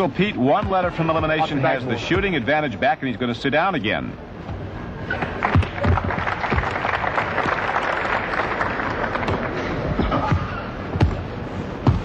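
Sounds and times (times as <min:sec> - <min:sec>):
basketball bouncing on court: 0:00.5 - 0:01.3
crowd applauding and cheering: 0:05.3 - 0:09.6.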